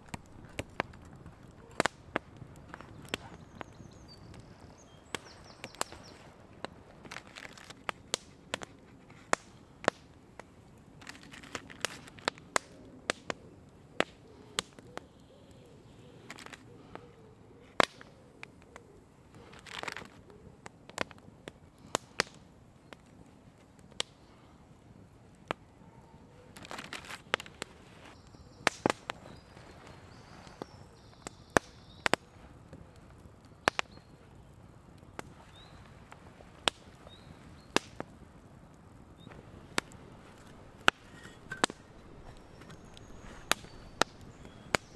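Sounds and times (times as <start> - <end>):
sharp pops: 0.0 - 13.4, 17.8 - 18.6, 36.6 - 38.2, 39.2 - 44.9
campfire crackling: 0.0 - 44.9.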